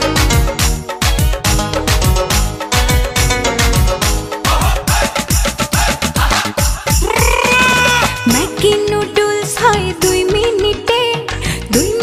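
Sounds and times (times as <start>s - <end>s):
electronic beat music: 0.0s - 8.8s.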